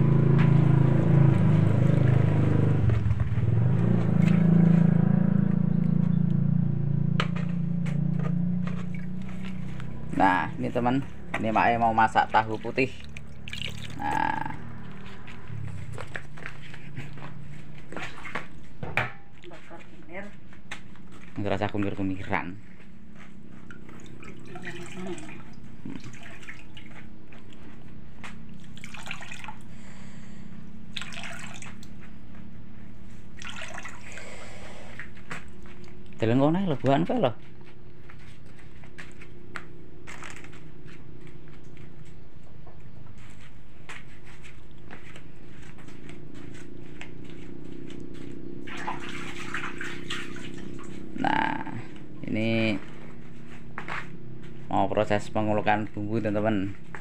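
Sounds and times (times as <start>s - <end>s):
low hum: 0.0s - 57.0s
water splashing and dripping: 7.9s - 17.3s, 23.2s - 29.7s, 30.9s - 32.1s, 33.3s - 36.2s, 48.2s - 53.0s.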